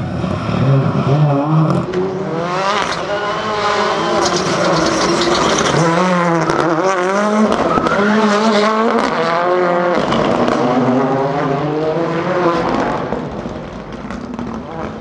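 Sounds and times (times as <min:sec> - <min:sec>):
rally car engine revving: 0:00.0 - 0:15.0
tyre noise: 0:01.6 - 0:07.9.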